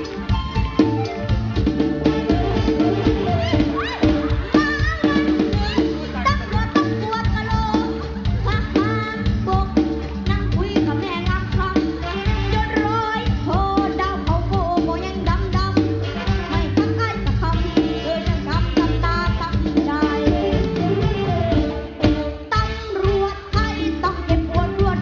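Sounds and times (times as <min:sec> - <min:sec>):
live band music: 0:00.0 - 0:25.0
steady drum beat: 0:00.0 - 0:25.0.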